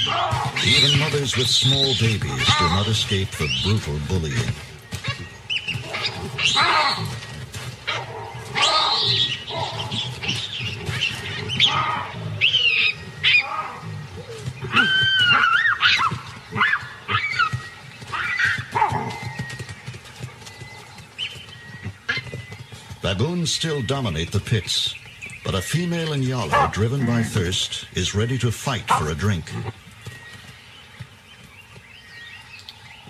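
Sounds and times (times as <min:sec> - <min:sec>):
baboons screaming: 0:00.0 - 0:04.2, 0:05.0 - 0:07.2, 0:07.8 - 0:19.3, 0:25.5 - 0:27.7.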